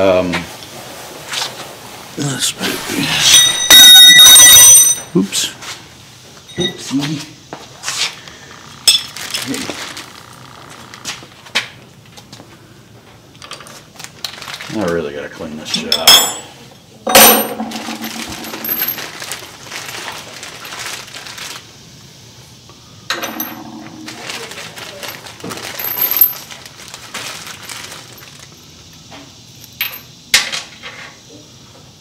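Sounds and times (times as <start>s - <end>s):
metal parts clinking: 3.2s - 5.1s, 8.9s - 9.5s, 15.7s - 20.8s, 23.1s - 26.6s
rustling: 7.8s - 11.5s, 17.3s - 21.7s, 23.2s - 28.6s.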